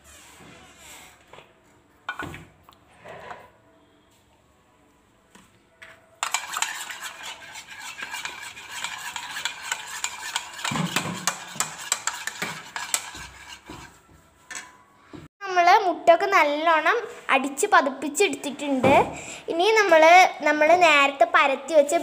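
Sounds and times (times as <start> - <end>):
whisk clicking against bowl: 6.2 - 13.5.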